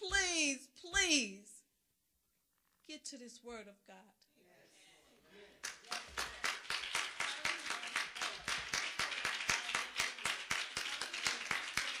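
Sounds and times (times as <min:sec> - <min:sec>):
congregation clapping: 0:05.6 - 0:12.0.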